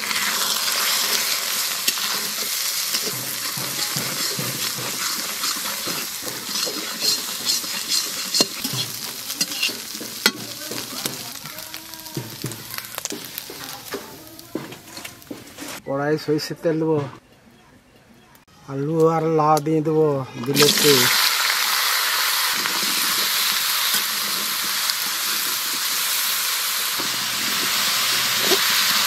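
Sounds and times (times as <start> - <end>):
eggs sizzling in oil: 0.0 - 15.8, 20.4 - 29.0
metal spatula scraping pan: 0.0 - 15.8, 22.6 - 26.1, 27.0 - 29.0.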